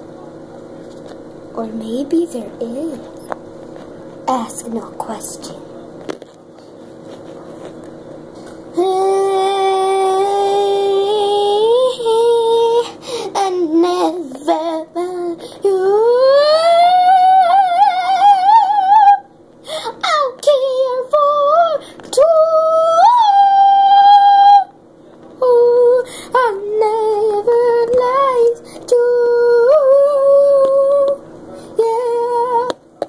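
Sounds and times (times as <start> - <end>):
girl singing in high voice: 8.7 - 24.7, 25.4 - 31.2, 31.8 - 32.8.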